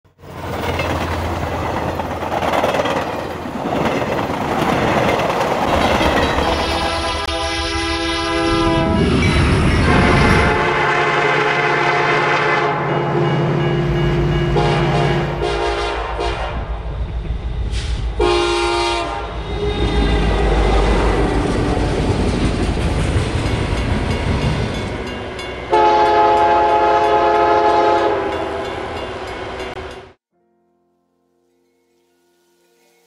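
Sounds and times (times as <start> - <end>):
passing train rumble and clatter: 0.1 - 30.2
locomotive horn blasts: 6.4 - 16.7, 18.2 - 21.2, 25.7 - 28.6.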